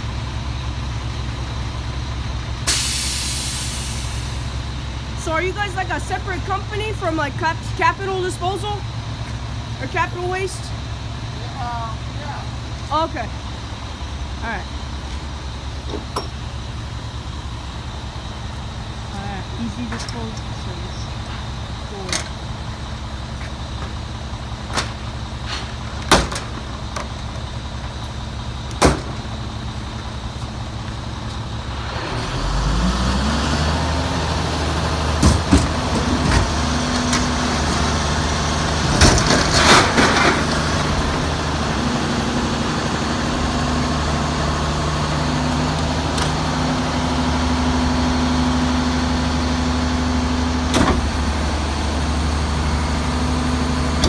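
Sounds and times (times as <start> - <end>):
diesel truck engine: 0.0 - 54.0
dumpster banging: 24.6 - 27.4, 28.7 - 29.5, 35.0 - 42.3, 50.6 - 51.7.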